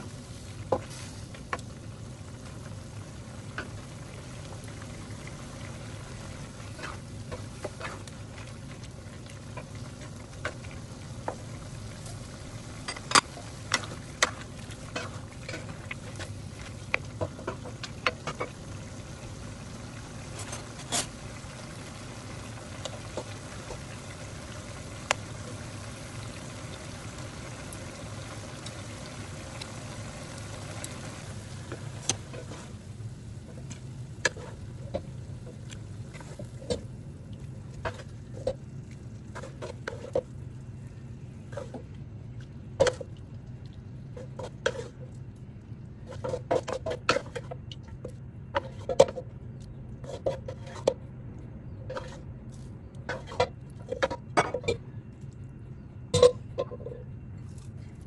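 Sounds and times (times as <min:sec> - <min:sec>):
steady low hum: 0:00.0 - 0:58.0
wooden spatula scraping a pan: 0:06.1 - 0:11.5, 0:13.6 - 0:18.6, 0:20.2 - 0:21.2, 0:31.7 - 0:32.8, 0:39.3 - 0:40.3, 0:44.2 - 0:45.1, 0:46.0 - 0:47.6, 0:48.5 - 0:49.2, 0:50.0 - 0:51.0, 0:51.9 - 0:52.3, 0:53.1 - 0:54.2
food sizzling in a wok: 0:09.4 - 0:33.3.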